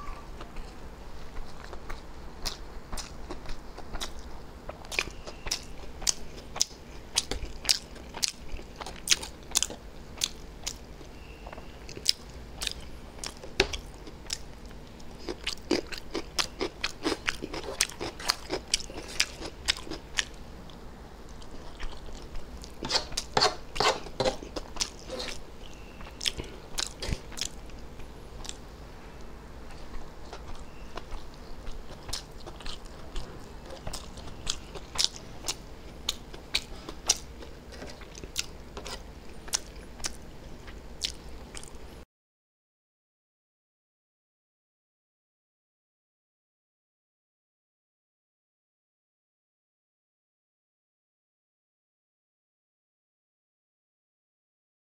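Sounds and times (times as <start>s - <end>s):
chewing noodles: 0.5s - 10.9s, 11.9s - 20.4s, 21.3s - 28.6s, 29.7s - 41.8s
sharp eating clicks: 11.9s - 20.4s, 26.0s - 28.6s, 30.3s - 40.2s.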